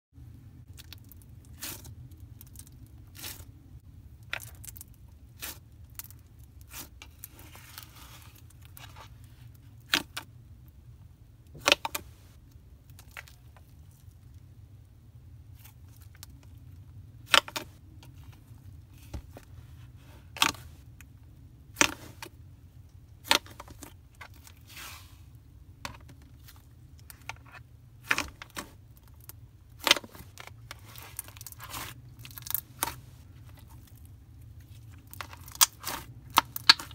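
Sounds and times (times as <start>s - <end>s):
slime clicking and popping: 35.4s - 36.9s.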